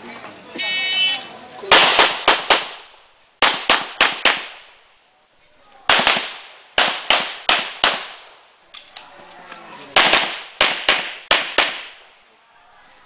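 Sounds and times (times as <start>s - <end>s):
pistol shots: 1.7s - 4.6s, 5.9s - 8.3s, 10.0s - 12.0s.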